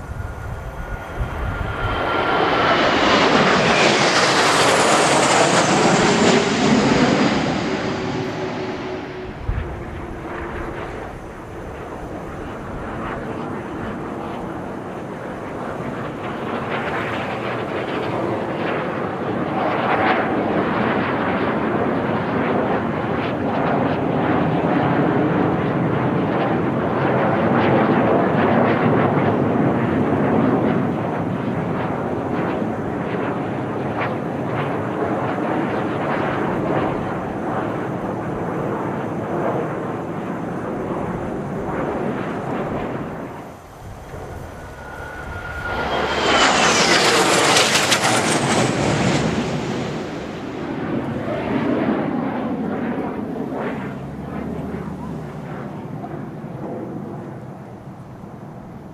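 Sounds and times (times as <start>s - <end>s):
jet planes flying overhead: 0.0s - 58.9s.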